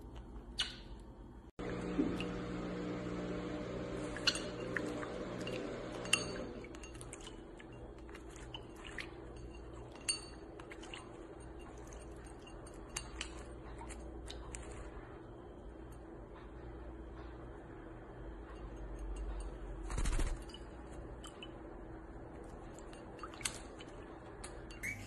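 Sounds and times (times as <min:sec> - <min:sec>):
low steady hum: 0:00.0 - 0:25.0
claws and beaks clinking on bowl: 0:04.0 - 0:15.0, 0:18.4 - 0:25.0.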